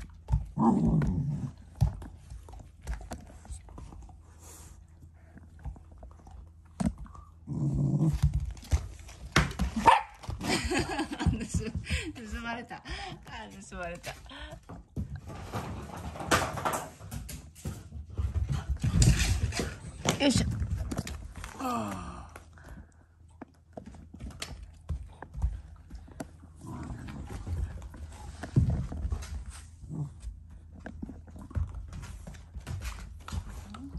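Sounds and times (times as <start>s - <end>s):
dog growling low: 0.4s - 1.8s, 7.0s - 8.4s, 26.4s - 29.0s, 29.6s - 31.6s
dog grumbles: 0.5s - 1.8s, 7.4s - 8.3s, 26.6s - 27.8s.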